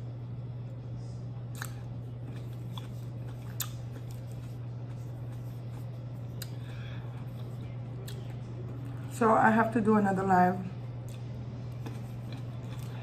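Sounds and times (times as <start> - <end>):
steady low hum: 0.0 - 13.0
person chewing grapes: 1.5 - 9.1, 11.0 - 13.0.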